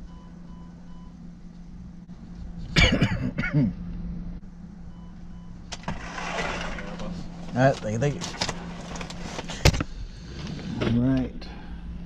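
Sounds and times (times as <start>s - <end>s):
steady low hum: 0.0s - 12.0s
person coughing: 2.7s - 3.8s.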